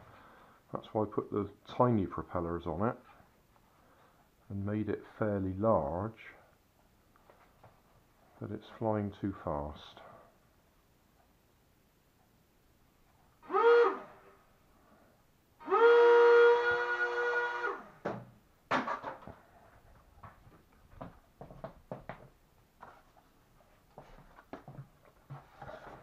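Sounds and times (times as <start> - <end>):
small electric motors whining: 13.4 - 14.1, 15.6 - 17.9.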